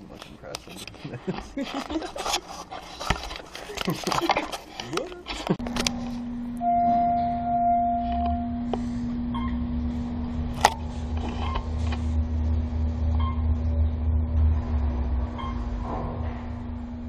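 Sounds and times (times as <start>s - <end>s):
elevator rumble: 5.4s - 17.0s.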